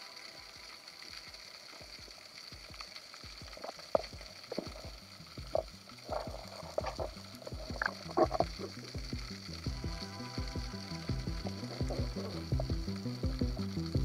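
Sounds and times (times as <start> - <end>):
underwater hiss: 0.0 - 14.0
soft knocks and low thumps: 3.4 - 10.0.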